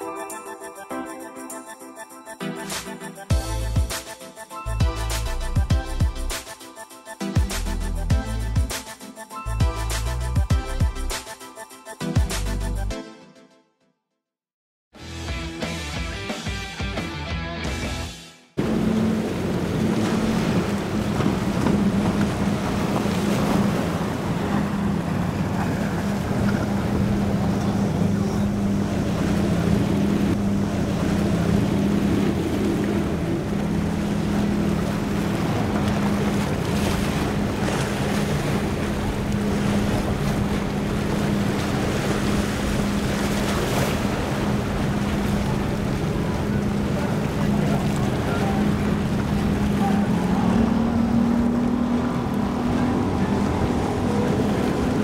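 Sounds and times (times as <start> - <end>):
waves: 0.0 - 12.9, 18.6 - 55.0
motorboat engine drone: 18.6 - 55.0.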